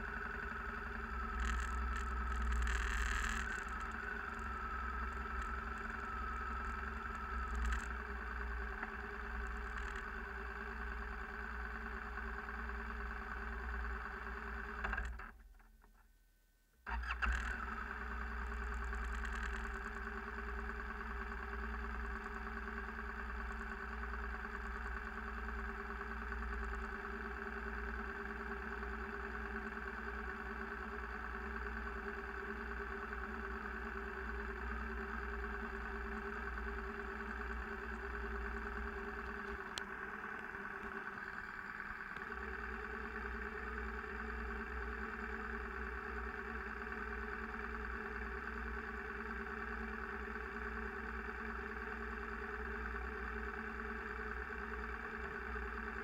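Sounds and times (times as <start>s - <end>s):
tyres on gravel road: 0.0s - 15.0s, 28.4s - 48.5s
vehicle engine running: 0.0s - 15.7s, 16.9s - 56.0s.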